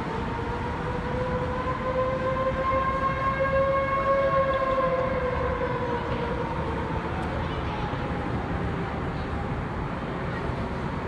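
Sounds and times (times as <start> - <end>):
warning sirens wailing: 0.0 - 10.2.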